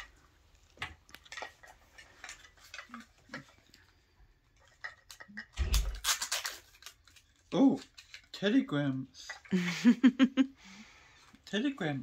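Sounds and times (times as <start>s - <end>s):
plastic packaging clicks and rustles: 0.0s - 4.0s, 4.6s - 9.5s
plastic wrapper crinkling: 5.0s - 8.4s.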